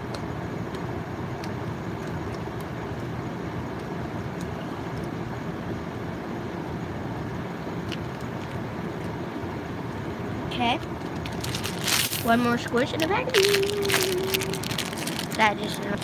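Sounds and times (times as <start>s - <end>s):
low rumbling background noise: 0.0s - 16.0s
plastic bag clicks: 11.2s - 12.3s, 12.9s - 16.0s.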